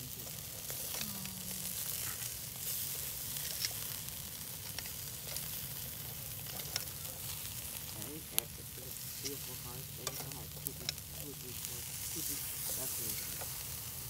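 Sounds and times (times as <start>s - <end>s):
meat sizzling over charcoal: 0.0s - 14.0s
metal tongs clicking on grate: 3.4s - 3.9s, 6.4s - 7.0s, 9.1s - 11.1s.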